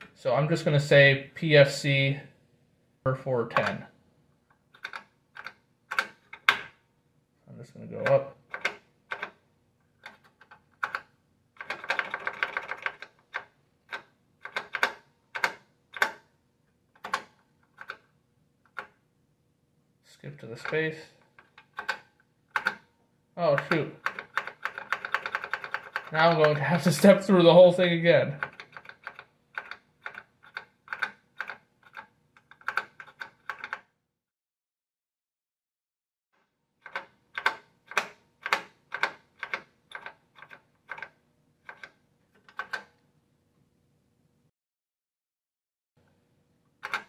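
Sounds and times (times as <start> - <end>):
push-button keys clicking: 4.8 - 6.7, 8.0 - 9.4, 21.6 - 22.0, 22.6 - 22.8, 23.6 - 26.6, 41.7 - 43.0.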